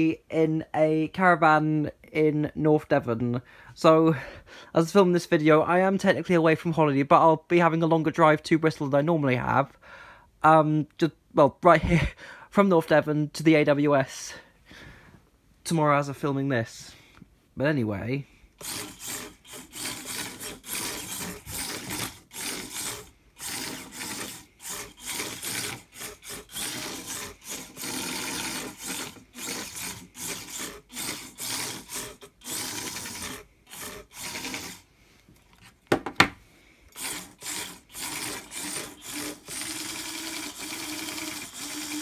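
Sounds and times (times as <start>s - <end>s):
small motors whirring: 18.6s - 34.9s, 36.9s - 42.0s
wheels rubbing on wood: 18.6s - 35.8s.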